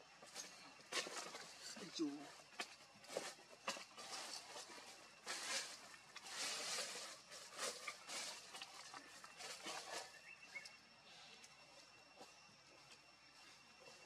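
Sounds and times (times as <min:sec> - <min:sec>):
rustling: 0:00.2 - 0:10.7.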